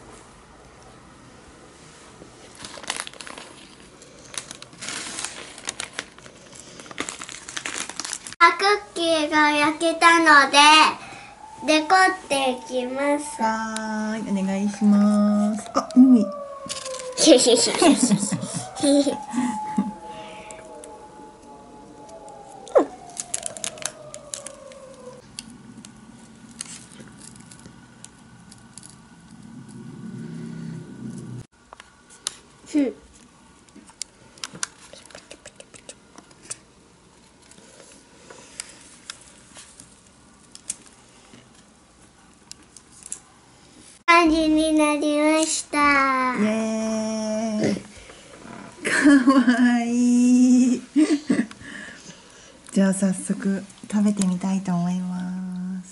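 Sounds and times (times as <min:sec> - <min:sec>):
baking paper crinkling: 0:02.4 - 0:08.4
falling whistle-like sweep: 0:10.5 - 0:25.2
steady tone falling in pitch: 0:10.5 - 0:26.6.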